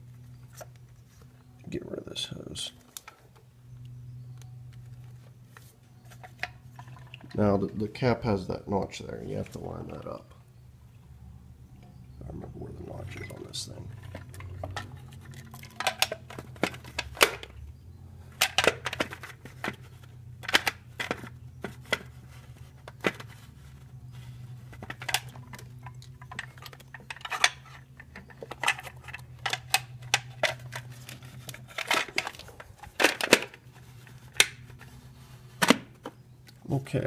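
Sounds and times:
low steady hum: 0.0s - 37.0s
clicks and knocks of hard parts: 13.1s - 17.6s, 18.3s - 23.5s, 24.7s - 34.9s, 35.6s - 36.6s.

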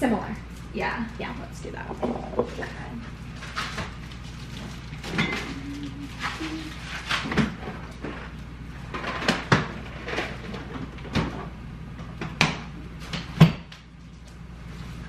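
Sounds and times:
kitchen knocks and clunks: 12.1s - 13.7s.

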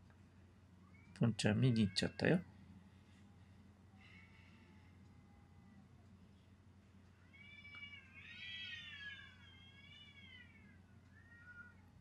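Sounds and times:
cat yowling: 7.4s - 11.9s.

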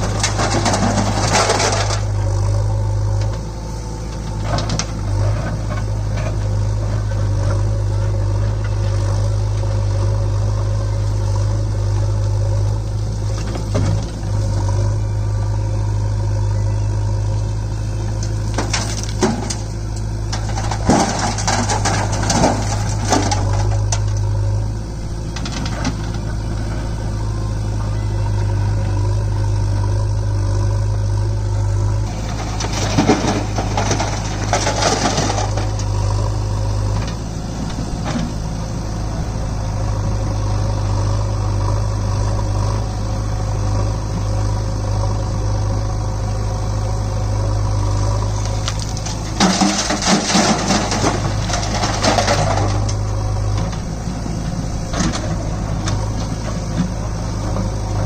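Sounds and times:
stones and rubble crashing: 0.0s - 2.1s, 20.3s - 24.1s, 32.1s - 36.0s, 48.6s - 53.0s
diesel engines running: 0.0s - 58.0s.

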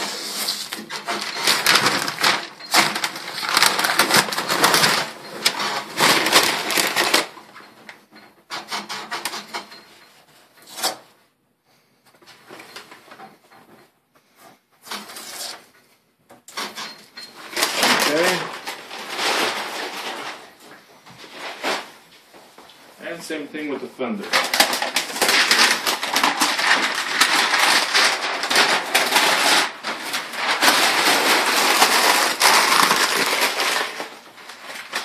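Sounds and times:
masking paper crinkling: 0.0s - 7.7s, 16.5s - 22.3s, 23.2s - 35.0s.

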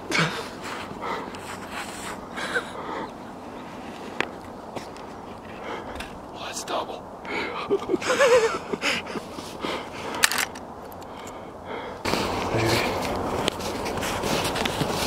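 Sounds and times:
footsteps crunching through snow: 0.4s - 2.4s, 12.1s - 15.0s
clothing rustle: 12.1s - 15.0s.

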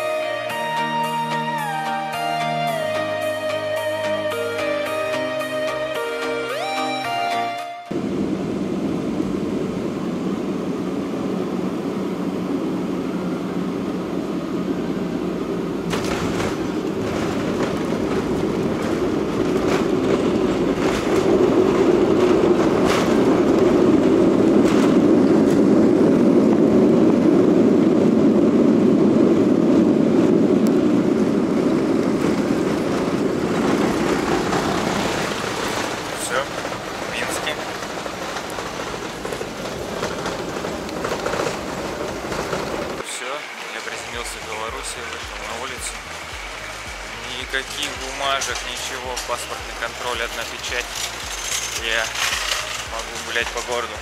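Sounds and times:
jet cabin engine rumble: 7.9s - 43.1s.

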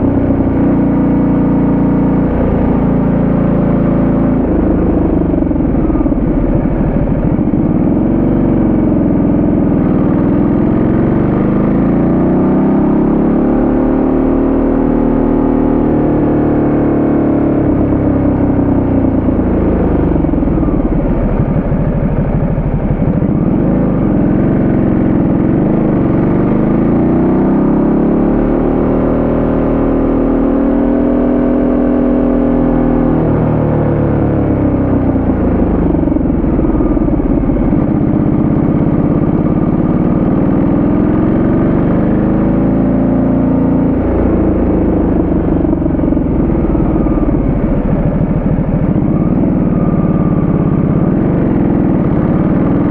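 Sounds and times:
motorcycle engine revving: 0.0s - 52.9s
road noise rushing: 43.8s - 52.9s.

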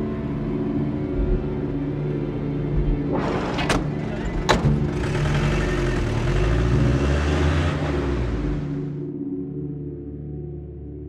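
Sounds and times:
low dark film score drone: 0.0s - 11.0s
van engine running: 2.8s - 9.0s.

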